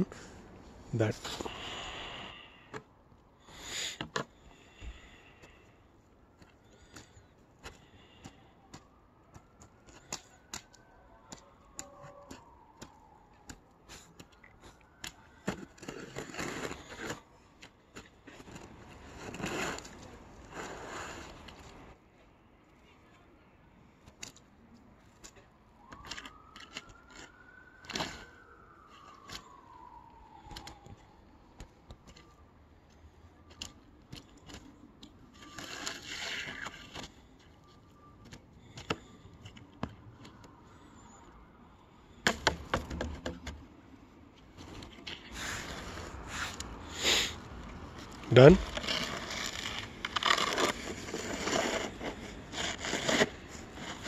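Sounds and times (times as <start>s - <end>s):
snow shovel scraping pavement: 15.5s - 17.2s, 18.3s - 21.7s, 35.3s - 37.2s, 45.3s - 47.4s, 48.3s - 54.0s.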